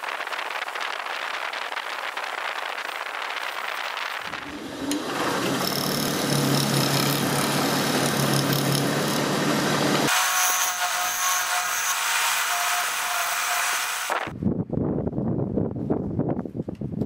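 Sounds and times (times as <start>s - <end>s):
lathe humming: 4.3s - 14.1s
turning tool scraping wood: 4.3s - 14.1s.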